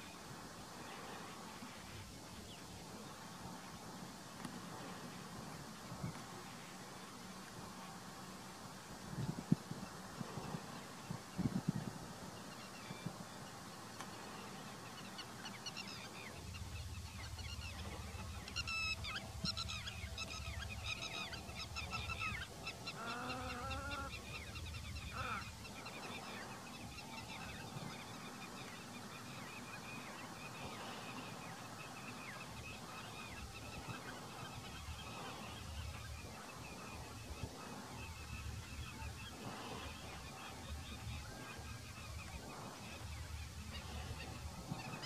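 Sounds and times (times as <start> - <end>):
deeper bird call: 20.9 - 24.2.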